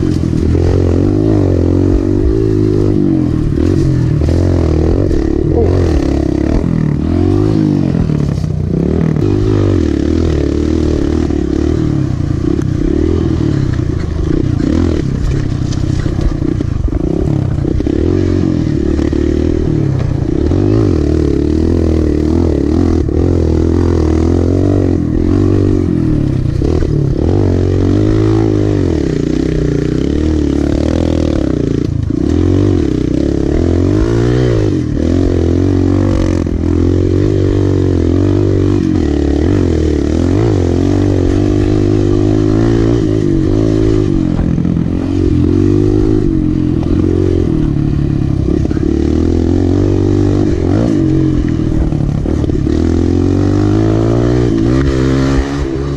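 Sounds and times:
dirt bike engine revving: 0:00.0 - 0:55.9.

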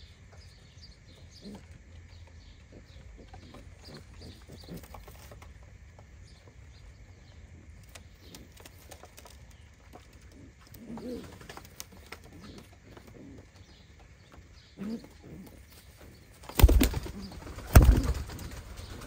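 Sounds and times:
pigeons cooing: 0:01.1 - 0:19.0.

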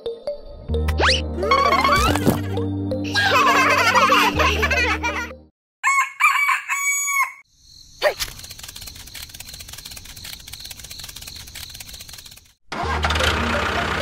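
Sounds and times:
rooster crowing: 0:05.8 - 0:07.4.

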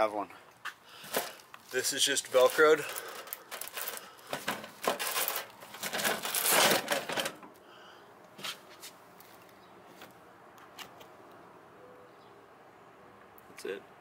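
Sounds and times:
hook-and-loop strips ripping apart: 0:02.4 - 0:07.3.

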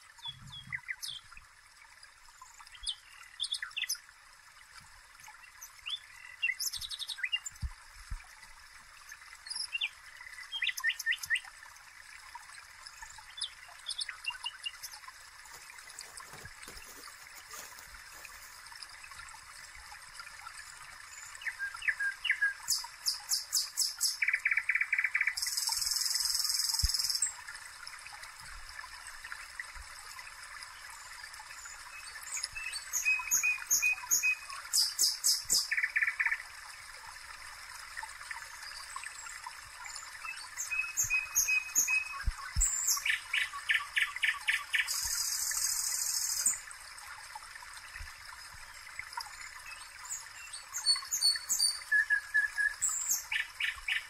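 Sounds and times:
food frying in oil: 0:13.5 - 0:19.2
small birds chirping and trilling: 0:39.9 - 0:46.6, 0:49.7 - 0:54.0.

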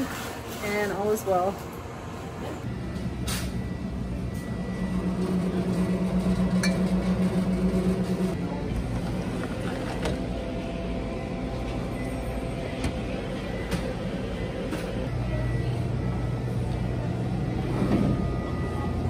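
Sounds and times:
drink cooler humming: 0:02.6 - 0:19.0.

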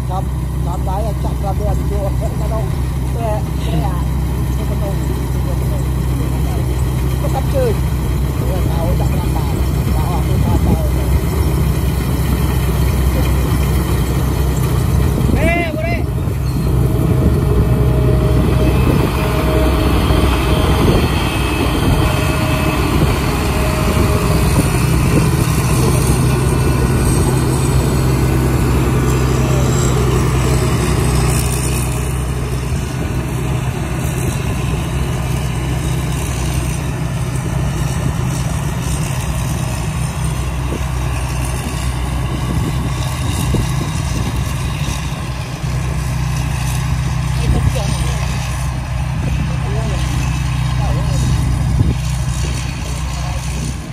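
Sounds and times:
combine harvester running: 0:00.0 - 0:53.9.

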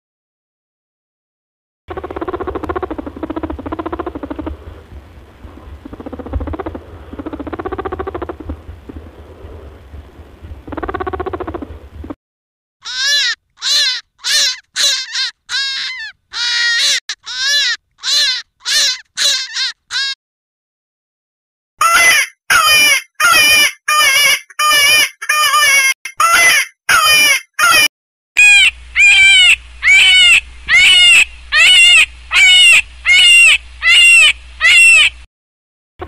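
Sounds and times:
low rumble: 0:01.9 - 0:12.2
rabbit low pitched calls: 0:01.9 - 0:12.2, 0:28.4 - 0:35.3
rabbit short squeals: 0:12.8 - 0:20.2, 0:26.2 - 0:35.2.

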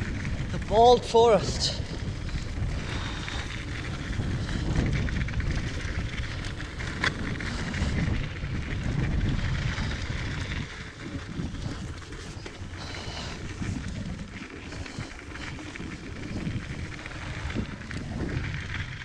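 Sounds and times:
bike tyres over dirt: 0:00.0 - 0:19.0
wind rumble on microphone: 0:00.0 - 0:19.0.

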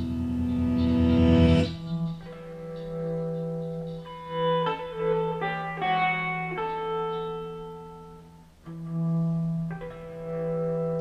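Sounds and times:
held low note: 0:00.0 - 0:03.3
amplified sustained notes: 0:00.0 - 0:11.0.

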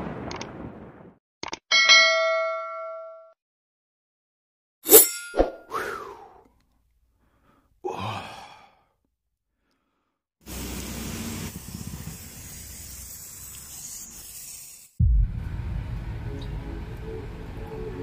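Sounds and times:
aerosol spray can hissing: 0:10.5 - 0:15.0.

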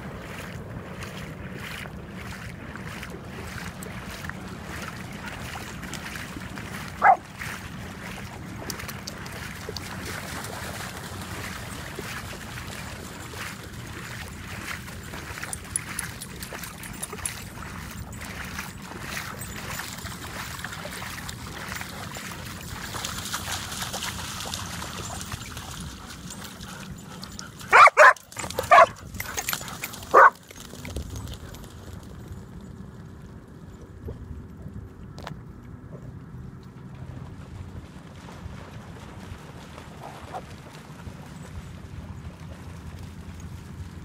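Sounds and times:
dogs splashing through water: 0:00.0 - 0:32.6, 0:36.0 - 0:44.0
dog barking sharply: 0:27.7 - 0:29.0, 0:30.1 - 0:30.4.

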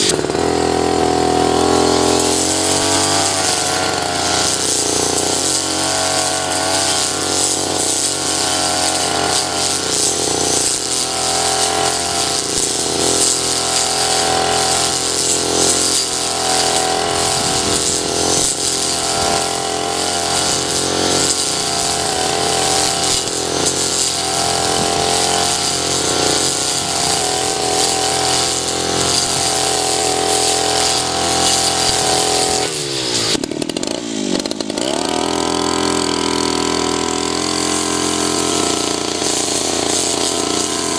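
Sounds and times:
blade cutting grass: 0:00.0 - 0:40.9
brush cutter engine running: 0:00.0 - 0:40.9.

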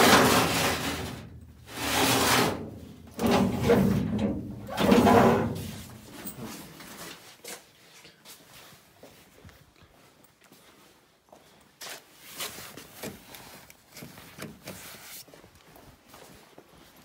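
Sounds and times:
metal drawers sliding open and shut: 0:00.0 - 0:06.6.

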